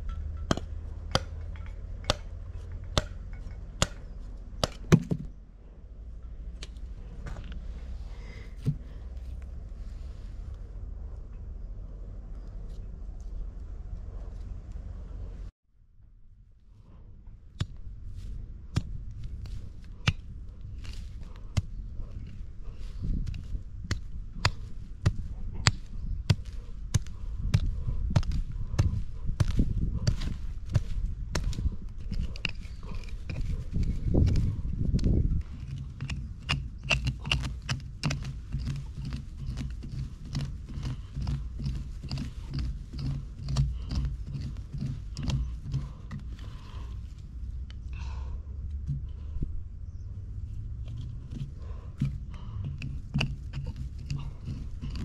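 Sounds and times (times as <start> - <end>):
dull thuds: 0.0 - 5.4, 8.6 - 9.0
hand cultivator raking dry peelings: 17.6 - 47.1, 51.2 - 55.0
metal tines scraping soil: 18.1 - 47.2, 50.9 - 55.0.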